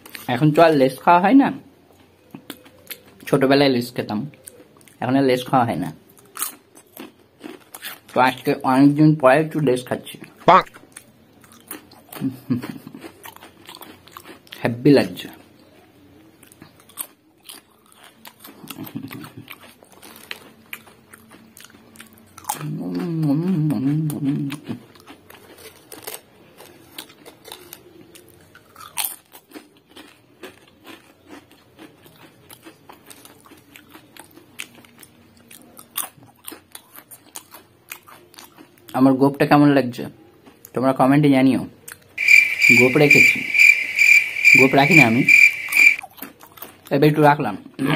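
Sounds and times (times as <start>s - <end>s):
potato chips crunching: 6.1s - 8.4s, 10.7s - 14.6s, 16.5s - 38.9s
man's voice: 42.6s - 43.7s, 44.4s - 45.5s.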